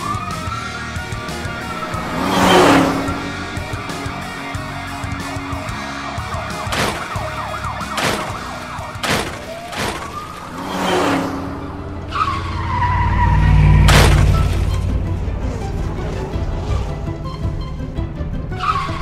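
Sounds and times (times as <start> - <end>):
background music: 0.0 - 13.0, 13.9 - 19.0
deep engine rumble: 0.0 - 18.6
engine revving: 0.0 - 19.0
cars whooshing past: 0.8 - 5.6, 9.0 - 17.3
tyre squeal: 8.0 - 14.9, 18.6 - 19.0.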